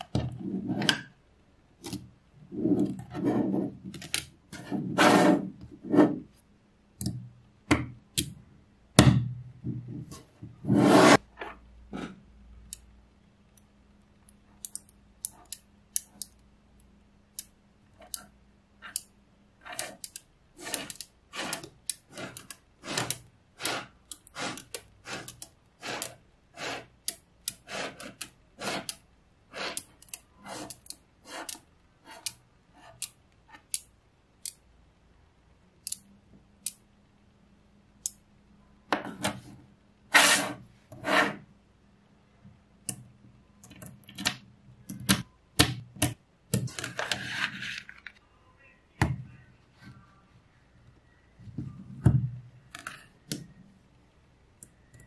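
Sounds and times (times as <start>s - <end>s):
rustling scrape: 4.5s - 6.2s, 10.1s - 12.2s, 40.1s - 41.4s, 46.8s - 48.2s.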